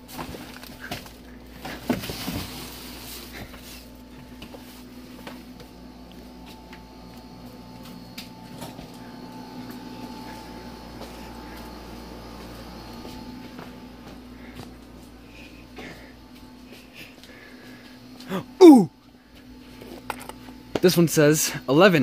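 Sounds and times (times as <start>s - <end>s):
steady low hum: 0.0s - 22.0s
light footsteps: 3.4s - 15.2s.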